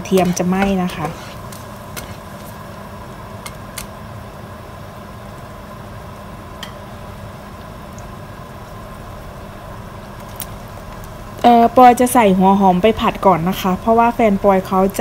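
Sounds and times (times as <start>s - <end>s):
small pops of frying: 0.0s - 2.7s, 3.4s - 4.0s, 6.6s - 8.2s, 10.0s - 11.5s
garlic sizzling in oil: 0.0s - 15.0s.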